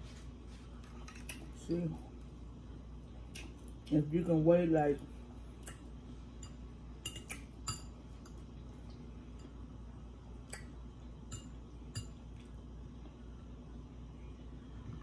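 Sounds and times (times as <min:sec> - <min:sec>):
fork clinking on glass bowls: 0:06.4 - 0:08.4.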